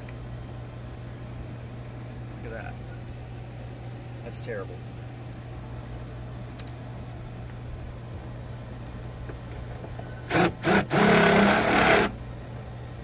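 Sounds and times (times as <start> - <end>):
cordless drill spinning: 10.3 - 12.2.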